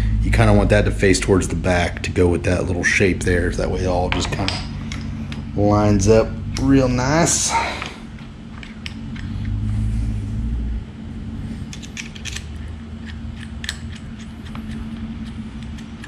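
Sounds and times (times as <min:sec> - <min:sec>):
faint steady hum: 0:00.0 - 0:16.0
low rumble: 0:00.0 - 0:16.0
small metal parts clicking: 0:08.2 - 0:09.6, 0:11.7 - 0:16.0.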